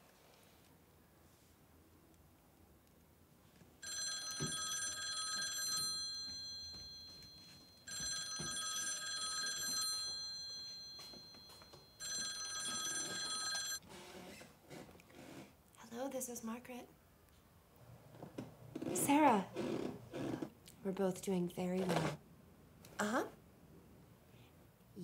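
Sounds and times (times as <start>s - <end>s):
telephone bell ringing: 3.8s - 13.8s.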